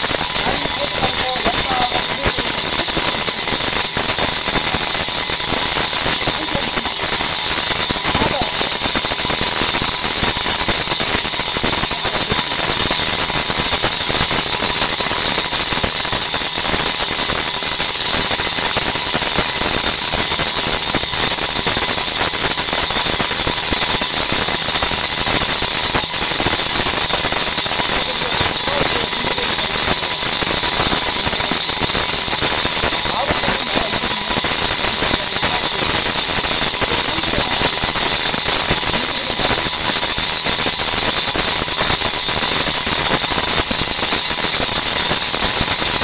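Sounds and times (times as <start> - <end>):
brake disc lathe cutting metal: 0.0 - 46.0
faint steady whine: 0.0 - 46.0.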